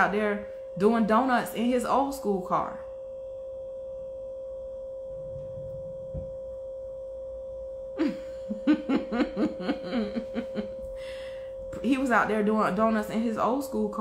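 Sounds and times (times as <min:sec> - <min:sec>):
steady high-pitched hum: 0:00.0 - 0:14.0
woman laughing: 0:08.0 - 0:10.8.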